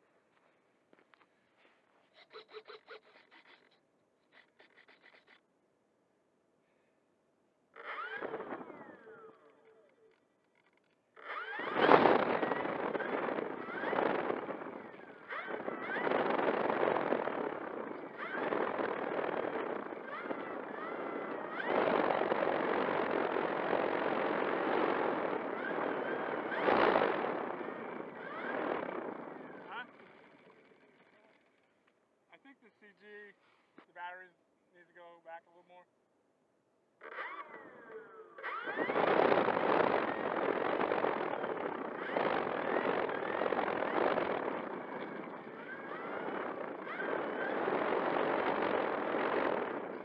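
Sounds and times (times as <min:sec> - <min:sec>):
propeller running: 0:07.8 - 0:10.0, 0:11.2 - 0:31.6, 0:37.0 - 0:50.0
electric motor whine: 0:11.2 - 0:30.5, 0:37.0 - 0:50.0
prop wash rushing on microphone: 0:11.5 - 0:30.2, 0:38.6 - 0:50.0.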